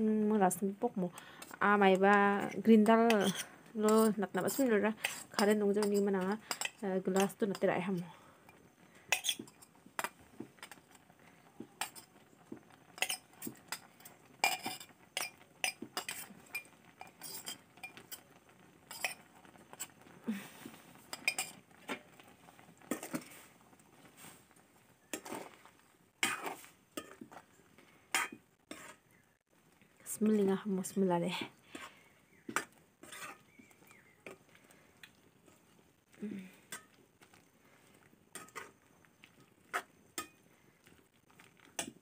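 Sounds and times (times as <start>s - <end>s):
metal utensils clinking on pot: 1.4s - 11.1s, 11.8s - 12.2s, 12.8s - 20.0s, 21.1s - 23.4s, 25.1s - 29.0s, 32.5s - 34.5s, 36.6s - 37.4s, 38.3s - 40.5s.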